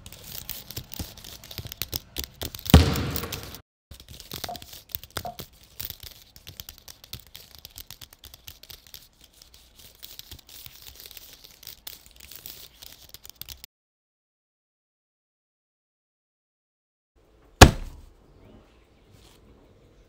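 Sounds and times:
modelling clay being worked: 0:00.0 - 0:13.7.

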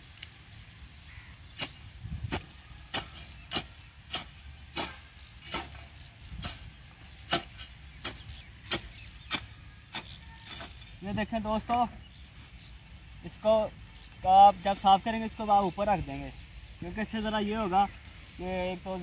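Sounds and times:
hoe scraping weeds: 0:00.0 - 0:15.8
hoe chopping into dry soil: 0:01.5 - 0:11.0.

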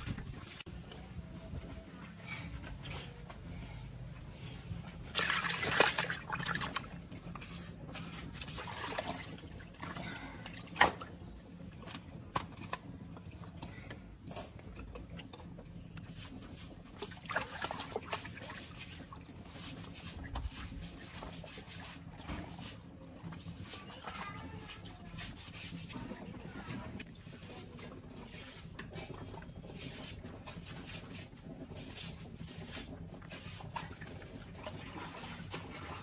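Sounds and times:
wet cloth scrubbing concrete floor: 0:00.0 - 0:10.2, 0:15.9 - 0:36.0
water splashing and dripping: 0:05.0 - 0:07.2, 0:16.0 - 0:36.0.

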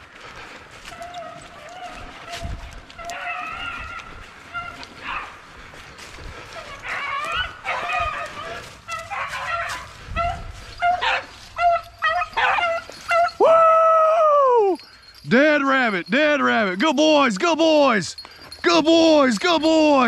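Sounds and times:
dogs barking and yipping: 0:00.1 - 0:13.5.

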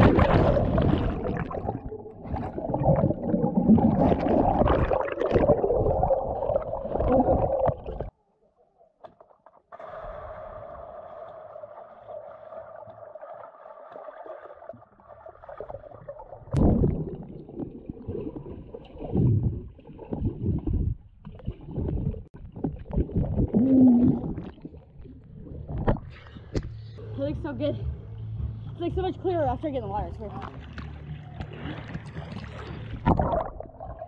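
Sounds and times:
air bubbles and churning water: 0:00.0 - 0:08.1, 0:09.6 - 0:26.6, 0:30.4 - 0:34.0
steady underwater hum: 0:00.0 - 0:08.1, 0:22.2 - 0:34.0.

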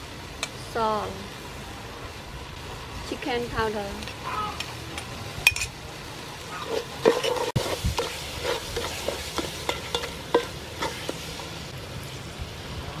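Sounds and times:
paste sizzling in oil: 0:05.9 - 0:12.1
utensil scraping a pot: 0:06.5 - 0:11.3.

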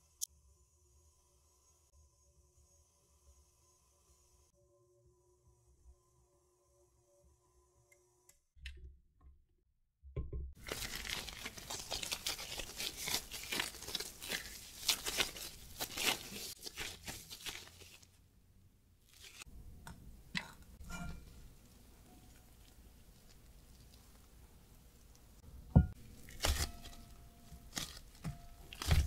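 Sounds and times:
dough tearing and squelching: 0:10.6 - 0:18.2, 0:19.0 - 0:19.5, 0:22.2 - 0:29.0.

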